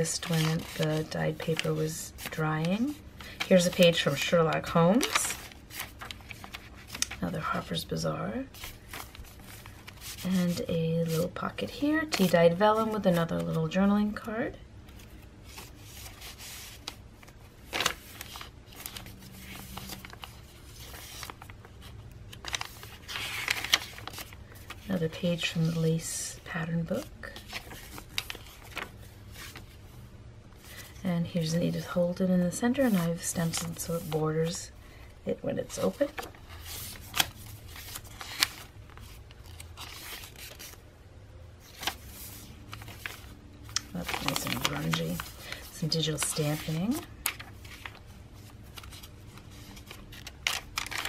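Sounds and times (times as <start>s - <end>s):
paper rustling: 0.0s - 7.7s, 8.5s - 13.7s, 14.9s - 25.8s, 26.9s - 29.9s, 35.7s - 40.8s, 41.6s - 51.0s
page flipping: 0.1s - 7.2s, 8.5s - 10.6s, 14.9s - 24.9s, 27.3s - 29.7s, 36.0s - 40.8s, 41.6s - 51.0s.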